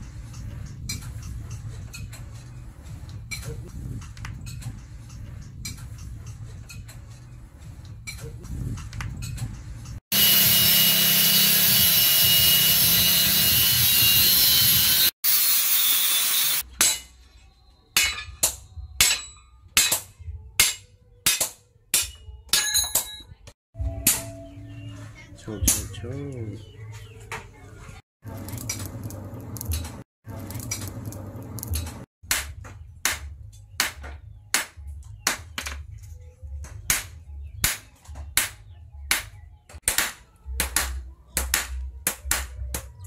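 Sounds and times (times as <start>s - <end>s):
angle grinder cutting steel: 10.1s - 16.6s.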